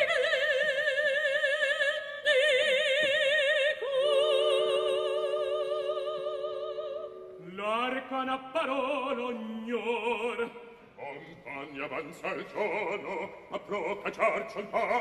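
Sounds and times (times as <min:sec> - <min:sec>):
woman singing opera: 0:00.0 - 0:10.5
man singing: 0:07.4 - 0:15.0.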